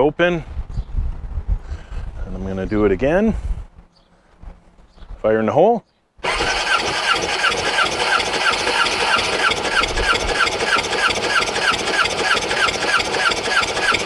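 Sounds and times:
engine cranking on electric starter: 0:06.2 - 0:14.0.

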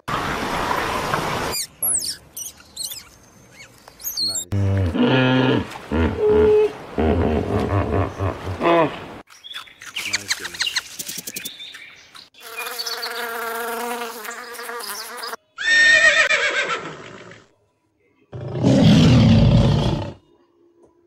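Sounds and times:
lion roaring: 0:04.5 - 0:09.0, 0:18.3 - 0:20.2
horse whinnying: 0:15.6 - 0:17.4.

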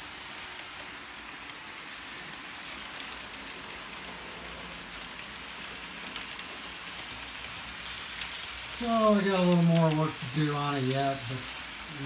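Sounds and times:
model train wheels rattling on rails: 0:00.0 - 0:12.0.

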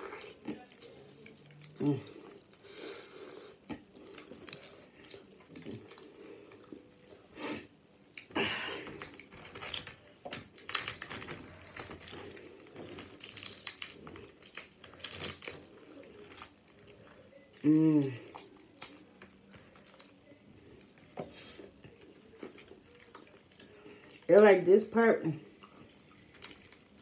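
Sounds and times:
crab shells cracking: 0:08.1 - 0:16.8, 0:17.5 - 0:20.2, 0:25.6 - 0:27.0.

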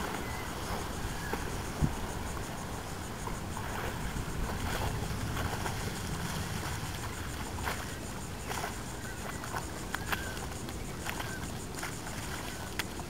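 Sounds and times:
water noise: 0:00.0 - 0:13.0
wind: 0:00.0 - 0:13.0
small knocks or splashes: 0:03.2 - 0:13.0.

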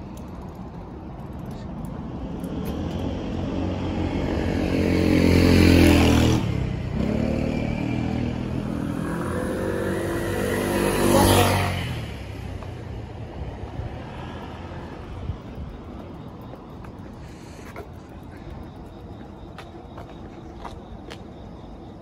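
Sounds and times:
motor vehicles passing: 0:01.6 - 0:18.9.

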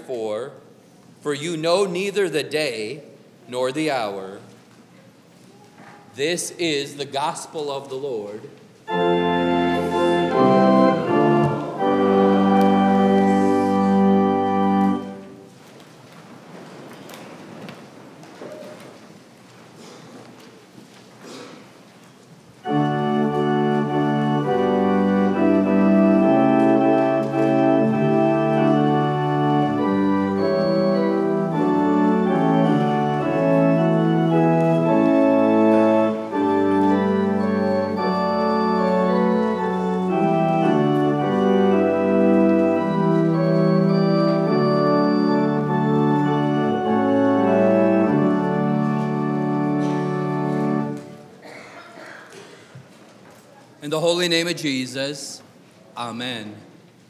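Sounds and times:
church organ playing hymn: 0:01.3 - 0:04.5, 0:06.2 - 0:15.6, 0:22.6 - 0:51.5.

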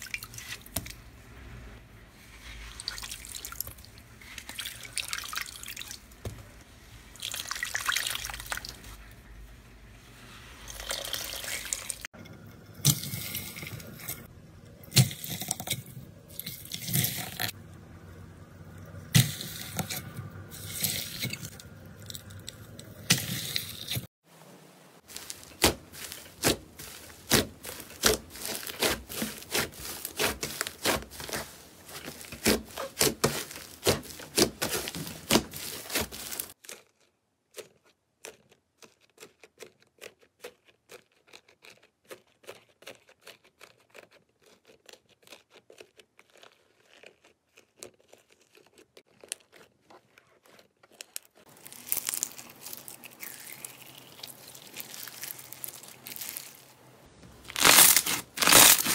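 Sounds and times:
foam-bead slime crunching: 0:00.0 - 0:24.2, 0:25.0 - 0:58.9
slime crackling and popping: 0:25.1 - 0:37.1, 0:38.2 - 0:56.8, 0:57.4 - 0:58.9.

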